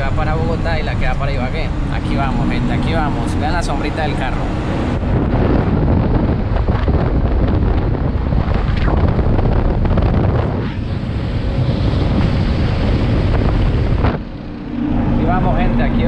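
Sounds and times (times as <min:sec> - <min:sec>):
truck rumbling: 0:00.0 - 0:16.0
wind buffeting microphone: 0:00.0 - 0:16.0.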